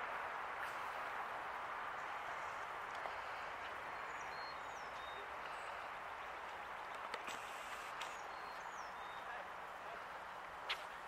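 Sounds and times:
faint bird chirps: 0:02.0 - 0:05.9, 0:07.6 - 0:09.4.

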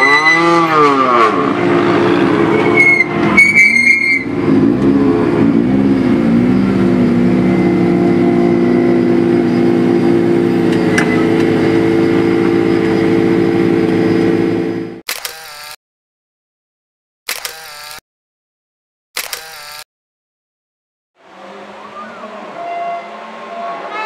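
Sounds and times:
rally car engine revving: 0:04.2 - 0:15.0.

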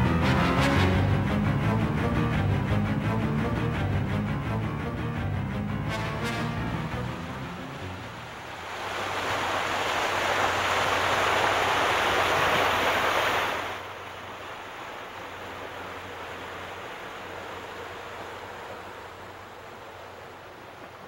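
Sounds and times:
rushing surf-like noise: 0:06.7 - 0:21.0.

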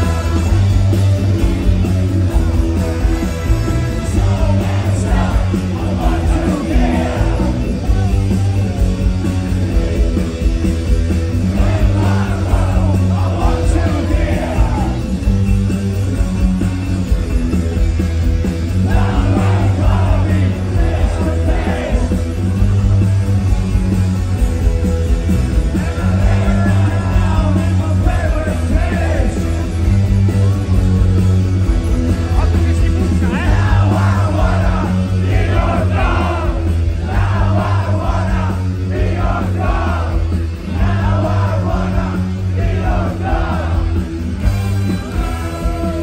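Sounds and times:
male lead vocal: 0:00.0 - 0:01.0, 0:04.0 - 0:08.0, 0:11.4 - 0:15.1, 0:25.8 - 0:29.6, 0:32.7 - 0:43.8
rock band with orchestra: 0:00.0 - 0:46.0
steady bass line: 0:00.0 - 0:46.0.

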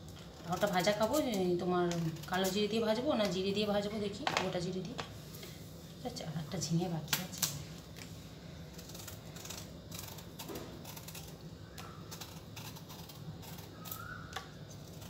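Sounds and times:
knife scraping gourd skin: 0:00.1 - 0:02.8, 0:08.5 - 0:15.0.

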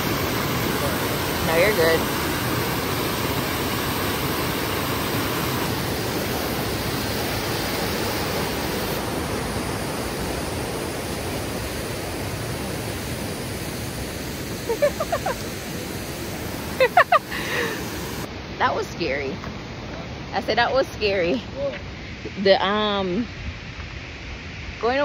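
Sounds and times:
creek rushing over boulders: 0:00.0 - 0:14.7.

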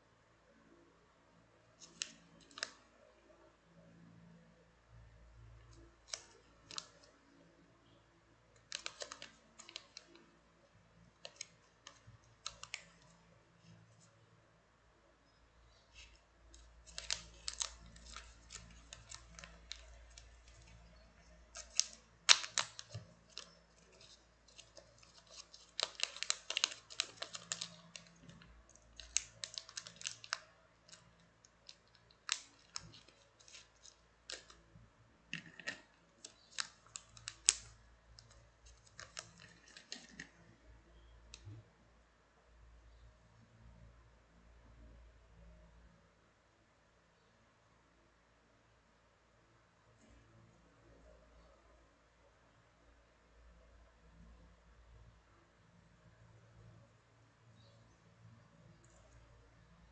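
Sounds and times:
plastic bag crinkling: 0:08.6 - 0:10.2, 0:15.9 - 0:34.6, 0:35.3 - 0:40.4.

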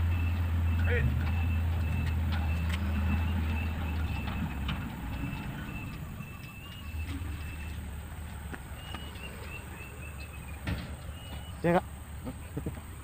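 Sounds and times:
diesel engine rumbling: 0:00.0 - 0:13.0.

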